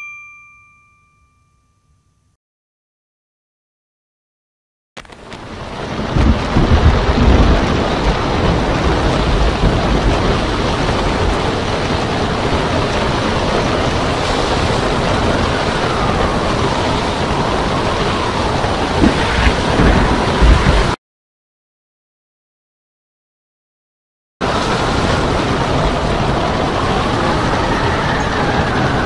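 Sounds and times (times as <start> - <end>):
storm wind: 5.0 - 21.0, 24.4 - 29.0
surf breaking: 5.0 - 21.0.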